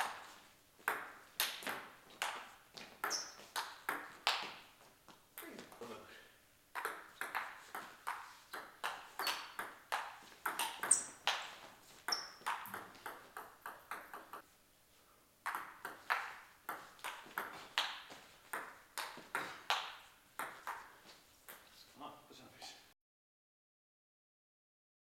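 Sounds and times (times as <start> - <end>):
table tennis ball clicking: 6.8 - 14.4.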